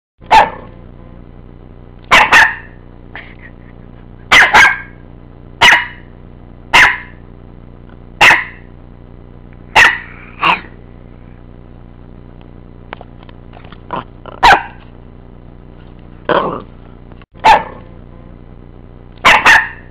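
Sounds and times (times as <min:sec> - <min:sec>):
dog barking: 0:00.2 - 0:00.7, 0:02.1 - 0:02.8, 0:04.3 - 0:05.0, 0:05.6 - 0:06.1, 0:06.7 - 0:07.2, 0:08.2 - 0:08.7, 0:09.7 - 0:10.7, 0:14.4 - 0:14.8, 0:17.4 - 0:17.9, 0:19.2 - 0:19.9.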